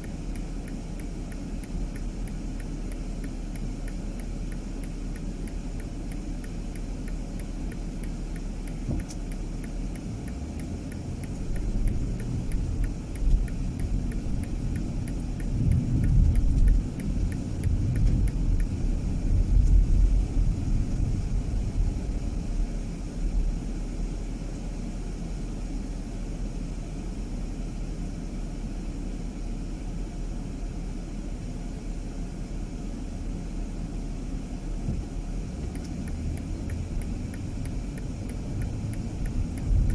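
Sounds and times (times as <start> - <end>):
faint regular ticking: 0.0 - 21.2, 34.9 - 39.9
car engine and road rumble: 0.0 - 39.9.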